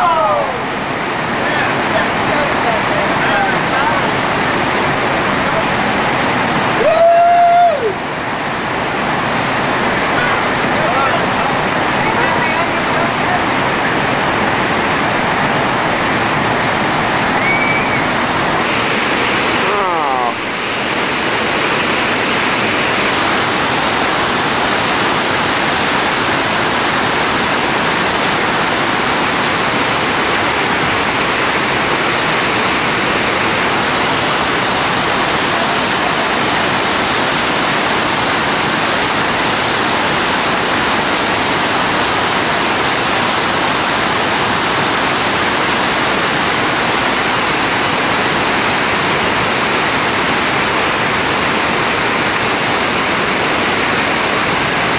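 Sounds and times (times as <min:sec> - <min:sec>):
whitewater rushing over rocks: 0:00.0 - 0:54.9.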